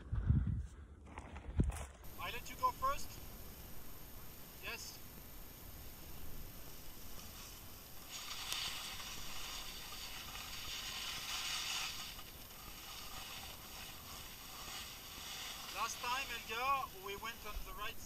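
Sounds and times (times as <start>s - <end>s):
low steady rumble: 2.1s - 15.6s
skis scraping over snow: 2.1s - 18.0s.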